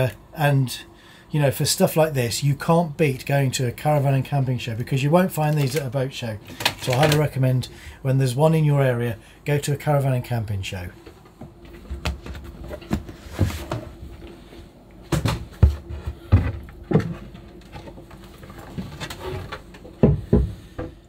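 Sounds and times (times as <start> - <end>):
wooden knocks and thumps: 15.1 - 21.0.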